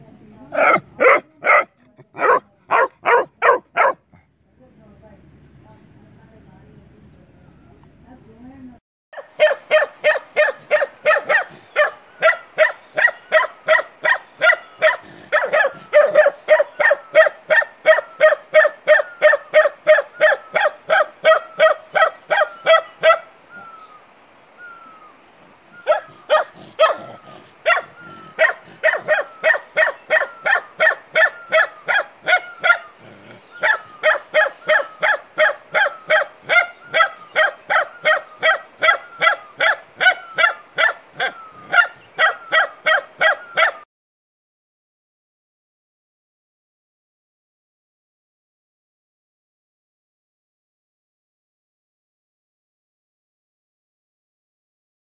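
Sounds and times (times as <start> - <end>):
puppy barking: 0.5 - 4.0, 9.2 - 23.3, 25.8 - 33.0, 33.6 - 43.9.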